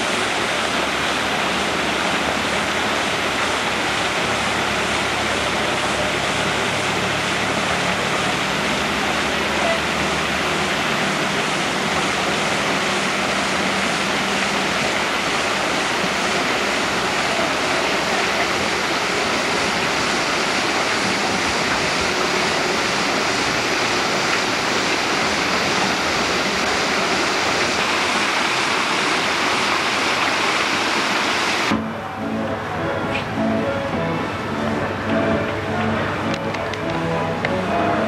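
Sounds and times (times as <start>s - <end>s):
waterfall rushing into pool: 0.0s - 38.0s.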